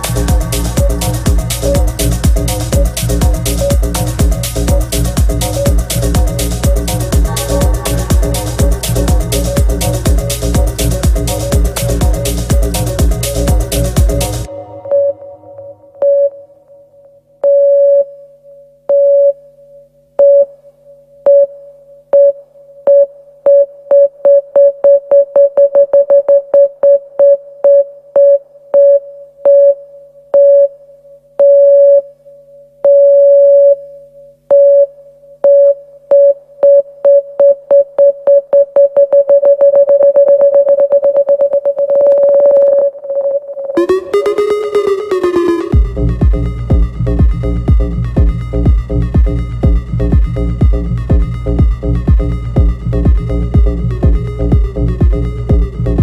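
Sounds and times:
low synth pad: 0:00.0 - 0:17.0, 0:43.8 - 0:56.0
repeated synth note stabs: 0:00.0 - 0:17.0, 0:43.8 - 0:56.0.

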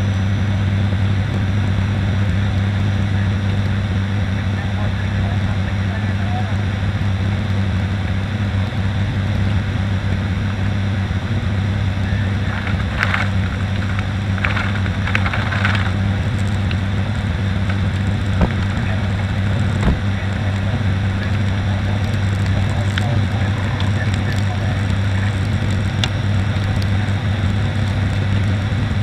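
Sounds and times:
turboprop engines droning: 0:00.0 - 0:29.0
rushing airflow: 0:09.7 - 0:29.0.

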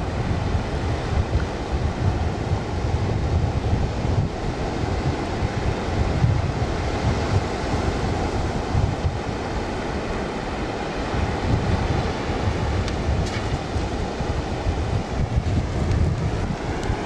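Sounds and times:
wind buffeting microphone: 0:00.0 - 0:17.0
small waves breaking: 0:04.4 - 0:17.0.

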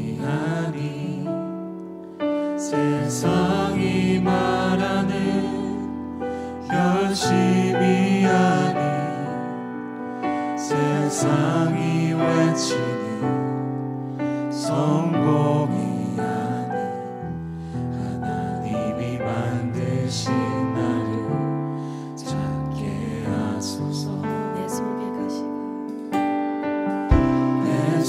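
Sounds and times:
group singing praise song: 0:00.0 - 0:01.6, 0:02.6 - 0:09.6, 0:10.4 - 0:13.5, 0:14.5 - 0:17.0, 0:18.0 - 0:21.6, 0:22.2 - 0:25.3, 0:27.1 - 0:28.0
keyboard: 0:00.0 - 0:28.0
acoustic guitar: 0:21.4 - 0:28.0.

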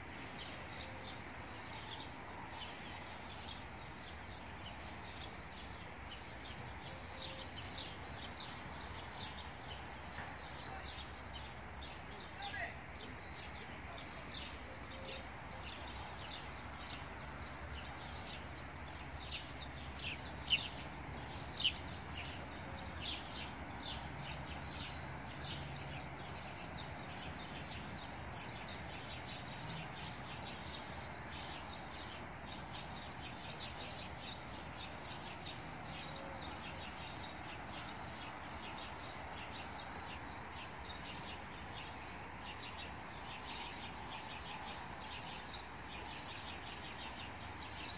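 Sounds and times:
small birds chirping: 0:00.0 - 0:47.9
steady background noise: 0:00.0 - 0:47.9.

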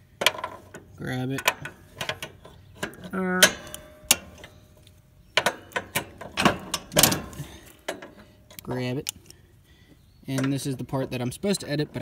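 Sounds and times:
metal clicks and rattles: 0:00.2 - 0:09.3.

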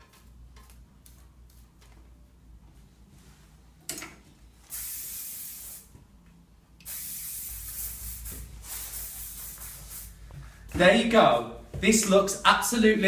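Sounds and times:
hairspray hissing bursts: 0:04.7 - 0:05.9, 0:06.8 - 0:10.2.

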